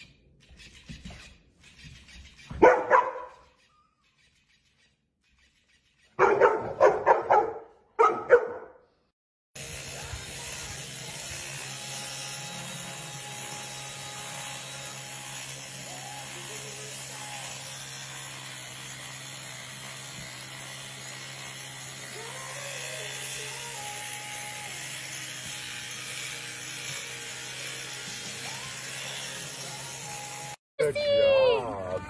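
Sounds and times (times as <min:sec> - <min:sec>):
electric grooming tool buzzing: 0:09.6 - 0:30.6.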